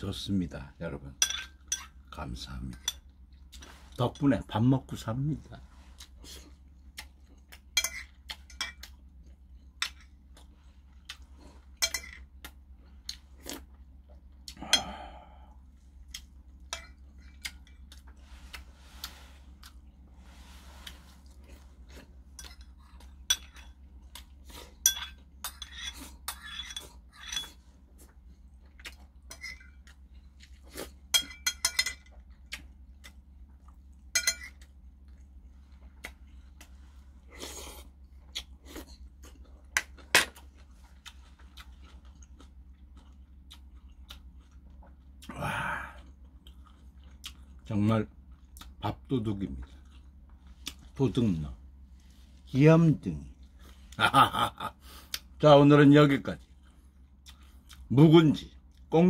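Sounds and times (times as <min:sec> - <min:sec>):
spoon clinking on porcelain bowls: 0:01.2 - 0:02.0, 0:07.7 - 0:08.8, 0:11.8 - 0:12.3, 0:16.7 - 0:17.0, 0:24.8 - 0:27.6, 0:31.1 - 0:32.1, 0:34.1 - 0:34.6
chewing: 0:05.6 - 0:31.2, 0:32.0 - 0:51.0, 0:56.4 - 0:58.9.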